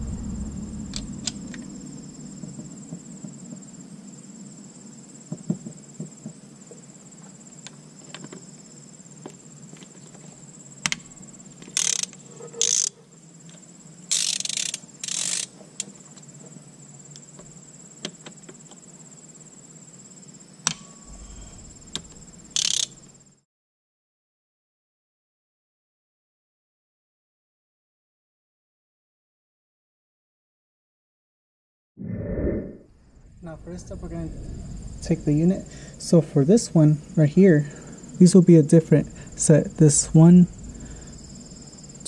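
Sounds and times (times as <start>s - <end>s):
crickets chirping: 0.0s - 23.4s, 32.9s - 42.0s
socket ratchet clicking: 11.7s - 12.9s, 14.1s - 15.5s, 22.6s - 23.0s.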